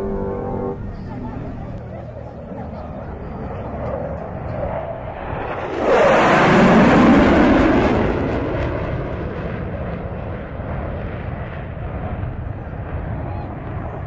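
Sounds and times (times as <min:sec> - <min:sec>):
jet engines passing: 0:00.0 - 0:14.0.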